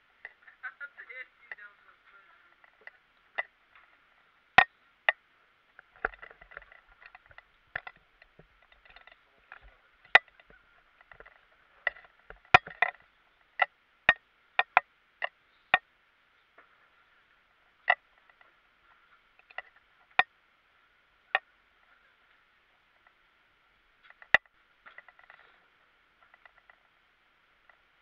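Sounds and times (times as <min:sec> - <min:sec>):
faint steady hiss: 0:00.0 - 0:28.0
sharp cracks and knocks: 0:05.8 - 0:15.9.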